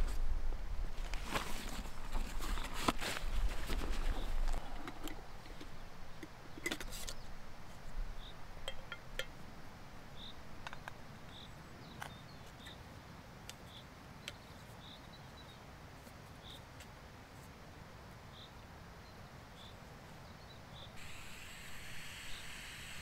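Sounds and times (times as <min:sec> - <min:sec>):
camping stove gear clinking: 0:01.7 - 0:07.2, 0:08.6 - 0:09.4.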